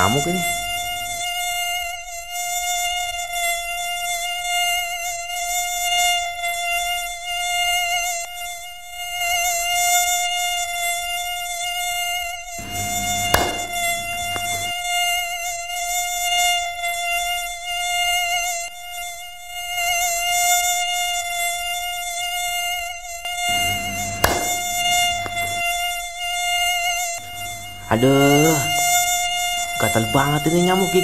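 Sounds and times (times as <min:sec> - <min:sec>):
mosquito whining: 0:00.0 - 0:31.0
sharp smack: 0:12.6 - 0:14.8, 0:23.5 - 0:25.7.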